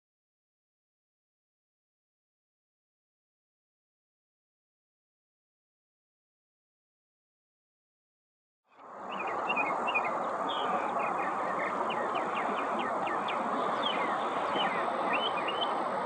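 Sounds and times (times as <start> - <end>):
steady loud background noise: 8.8 - 16.0
mockingbird singing varied phrases: 9.1 - 15.8.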